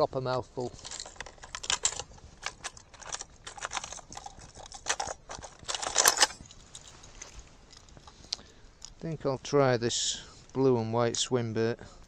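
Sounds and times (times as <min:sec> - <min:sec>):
fishing tackle rattling and rustling: 0:00.0 - 0:09.0.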